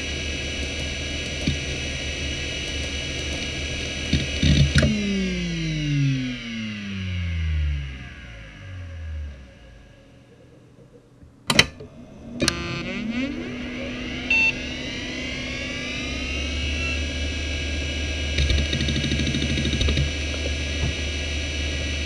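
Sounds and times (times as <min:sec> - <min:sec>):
hard drive whine: 0:00.0 - 0:22.0
low rumbly hum: 0:00.0 - 0:22.0
hard drive clicks: 0:00.6 - 0:05.1, 0:18.3 - 0:21.2.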